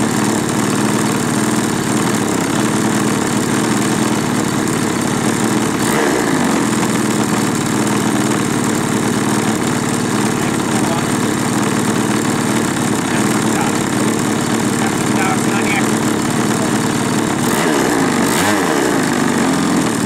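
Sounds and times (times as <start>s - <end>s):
model aircraft engine running: 0.0s - 20.0s.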